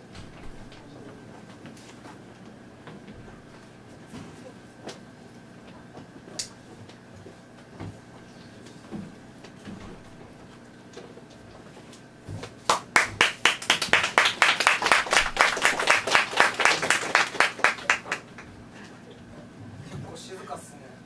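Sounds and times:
hand clapping: 0:12.5 - 0:18.5.

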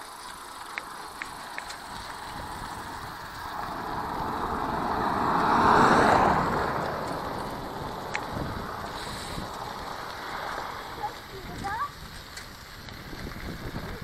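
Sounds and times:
car driving past: 0:01.4 - 0:11.0.

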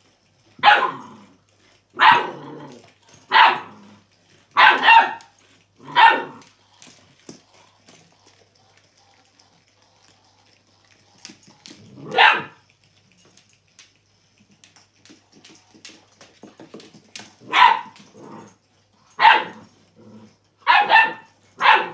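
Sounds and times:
dog barking: 0:00.6 - 0:01.1, 0:02.0 - 0:02.4, 0:03.3 - 0:03.7, 0:04.6 - 0:06.4, 0:12.0 - 0:12.6, 0:17.4 - 0:18.0, 0:19.2 - 0:19.6, 0:20.6 - 0:21.9.

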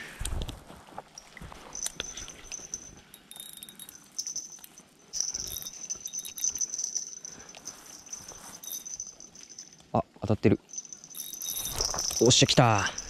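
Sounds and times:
handling clicks and knocks: 0:10.6 - 0:13.0
insects trilling: 0:10.6 - 0:13.0.

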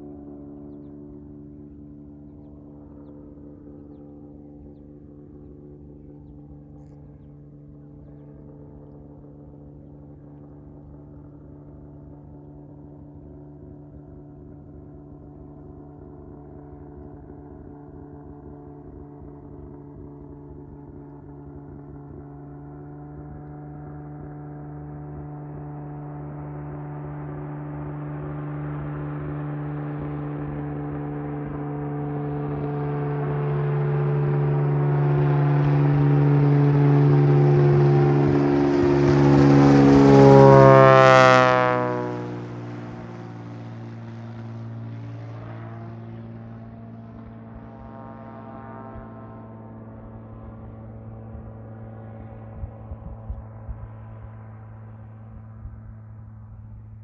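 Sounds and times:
propeller plane engine droning: 0:00.0 - 0:57.0.

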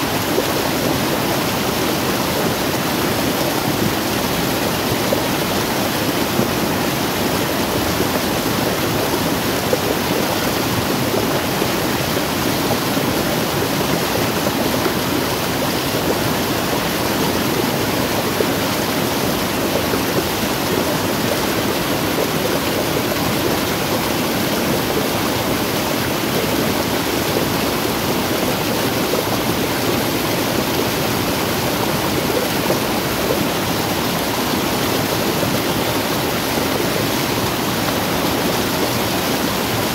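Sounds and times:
water rushing down a cascade: 0:00.0 - 0:39.9.

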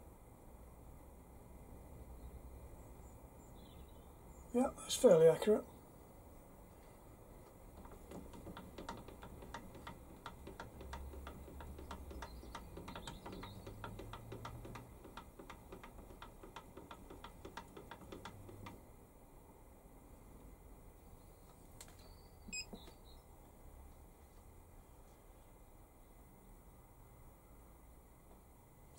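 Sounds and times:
lathe carriage ticking: 0:07.7 - 0:18.8.

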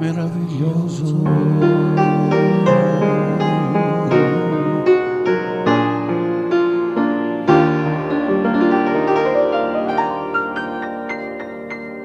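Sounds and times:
solo piano: 0:00.0 - 0:12.0.

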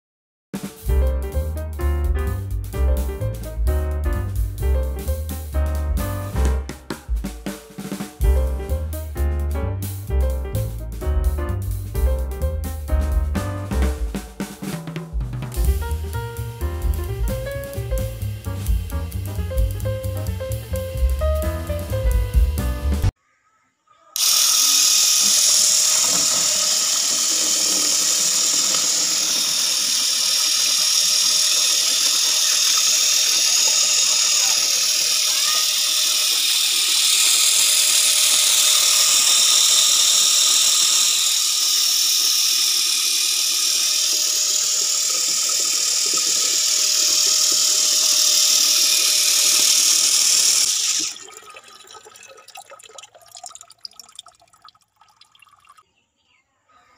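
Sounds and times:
electric gear motor whining: 0:24.2 - 0:51.2.

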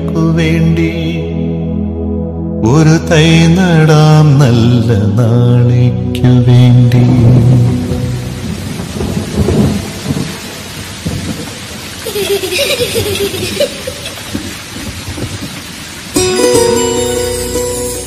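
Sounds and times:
song music: 0:00.0 - 0:09.7, 0:16.2 - 0:18.0
rain falling: 0:02.8 - 0:18.0
rolling thunder: 0:06.2 - 0:16.8.

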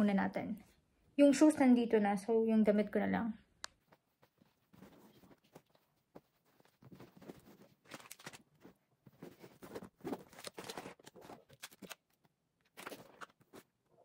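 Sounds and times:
clothes rustling into backpack: 0:03.9 - 0:12.0.

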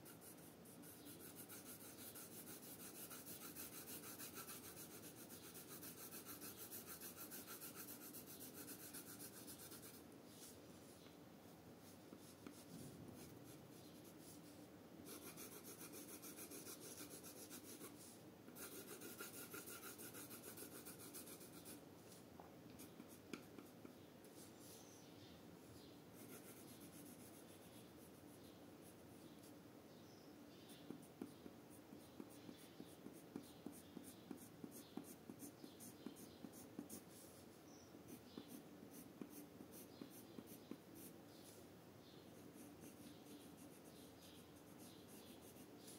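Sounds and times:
pencil scratching on paper: 0:00.0 - 0:10.5, 0:12.1 - 0:21.8, 0:26.2 - 0:28.3, 0:30.7 - 0:37.4, 0:38.1 - 0:41.6, 0:42.3 - 0:45.9.

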